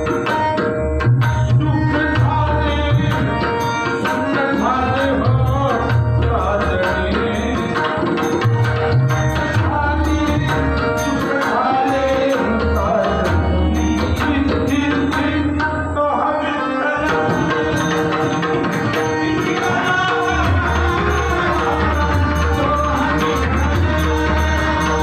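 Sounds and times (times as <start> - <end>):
harmonium chords: 0.0 - 25.0
man singing: 1.5 - 25.0.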